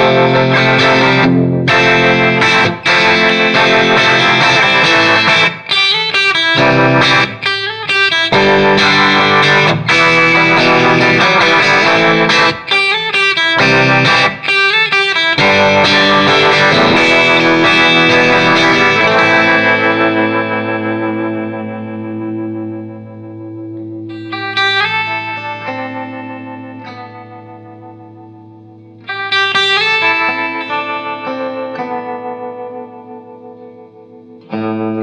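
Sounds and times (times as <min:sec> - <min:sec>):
electric guitar chords: 0:00.0 - 0:35.0.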